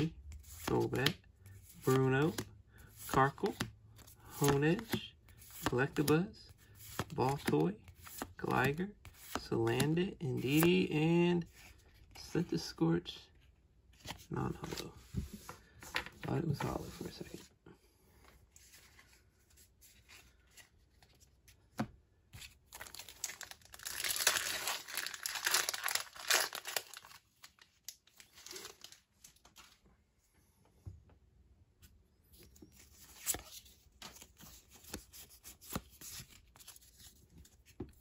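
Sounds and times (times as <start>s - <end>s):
cards rustling: 0.0s - 12.8s, 13.9s - 17.5s, 18.2s - 29.8s, 32.4s - 38.0s
foil wrapper crinkling and tearing: 22.8s - 29.3s.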